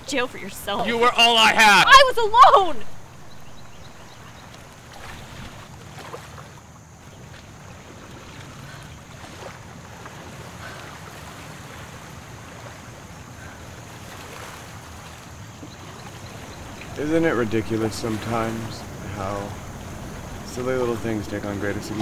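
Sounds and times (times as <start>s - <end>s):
wind rumble on microphone: 7.2s - 22.0s
waves washing against rocks: 10.2s - 22.0s.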